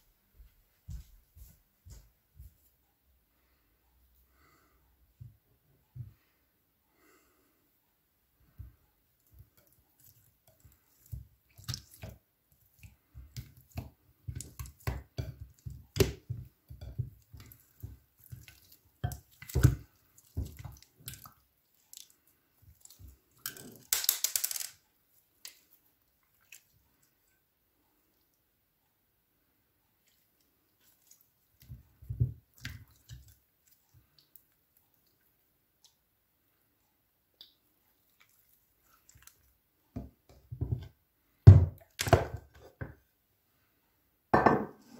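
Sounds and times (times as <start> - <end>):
slime squelching and crackling: 9.2 - 24.4.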